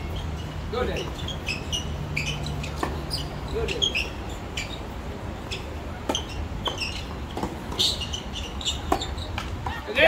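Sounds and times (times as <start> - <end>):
tennis ball hit and bouncing: 2.2 - 3.8, 6.0 - 9.8.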